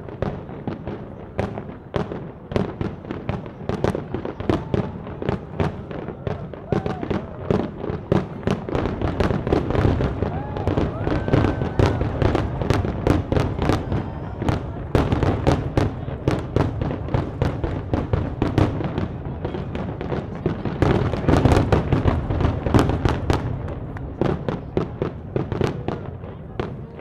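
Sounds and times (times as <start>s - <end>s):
fireworks bangs: 0.0s - 27.0s.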